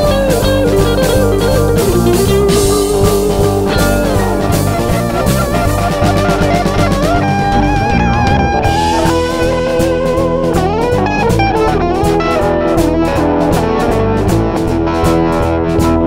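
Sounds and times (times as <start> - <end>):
blues rock guitar and drums: 0.0 - 16.0
lead guitar bending notes: 0.0 - 16.0.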